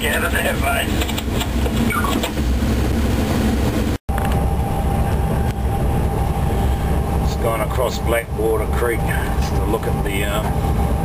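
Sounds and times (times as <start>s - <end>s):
wheels running on rails: 0.0s - 4.7s
locomotive engine rumble: 0.0s - 11.0s
steady thin whine: 0.0s - 11.0s.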